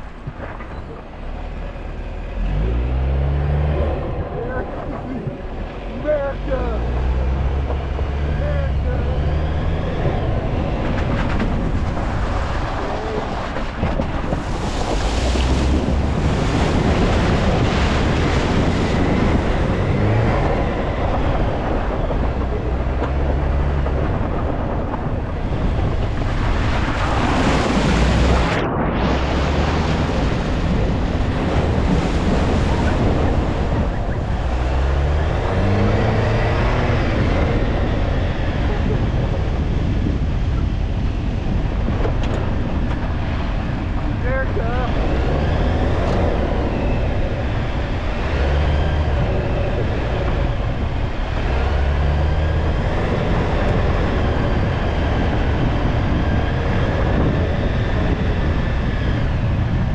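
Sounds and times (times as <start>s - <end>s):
car engine pulling through water: 0.0s - 59.9s
water splashing and rushing: 0.0s - 59.9s
wind buffeting the microphone: 0.0s - 59.9s.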